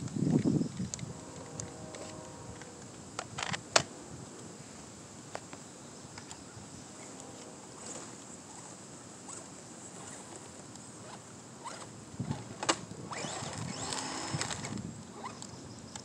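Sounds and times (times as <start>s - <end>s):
small motors whining: 0.9s - 2.9s, 6.9s - 15.6s.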